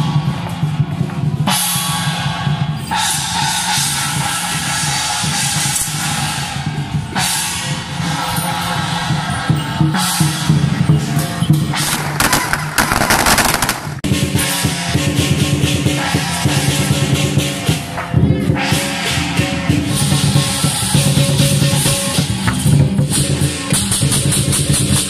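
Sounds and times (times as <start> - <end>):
music with heavy drum beat: 0.0 - 8.2, 9.8 - 25.0
firecrackers crackling: 11.8 - 14.1.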